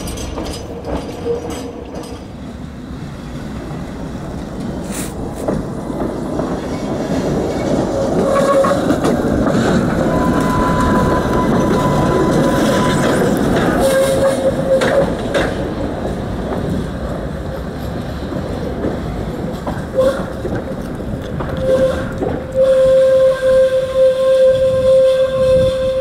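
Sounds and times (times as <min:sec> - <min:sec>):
tram wheels squealing: 0:00.0 - 0:02.6, 0:04.8 - 0:19.0, 0:19.6 - 0:26.0
tram rumbling and clattering: 0:00.0 - 0:26.0.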